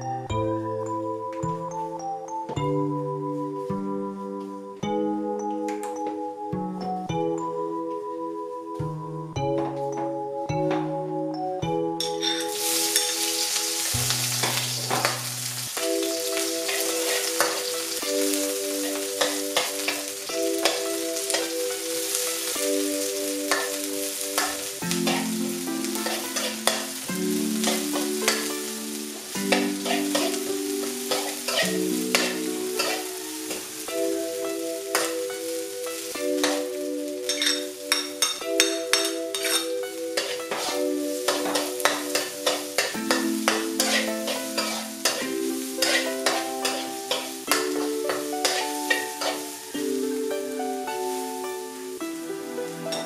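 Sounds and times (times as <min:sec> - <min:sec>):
keyboard melody: 0:00.0 - 0:53.0
food sizzling in hot oil: 0:12.0 - 0:53.0
utensil scraping a pan: 0:24.4 - 0:25.4, 0:29.4 - 0:30.4, 0:31.1 - 0:33.1, 0:39.3 - 0:49.5.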